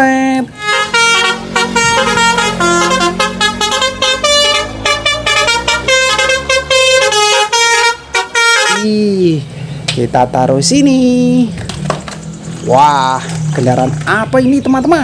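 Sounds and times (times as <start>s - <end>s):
bus horn playing melody: 0.5s - 9.0s.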